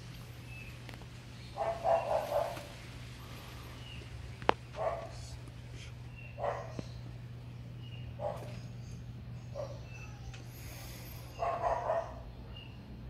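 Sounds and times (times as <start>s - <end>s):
steady low hum: 0.0s - 13.0s
dog barking: 1.6s - 2.7s, 4.8s - 5.2s, 6.4s - 6.9s, 8.2s - 8.6s, 9.5s - 9.9s, 11.3s - 12.3s.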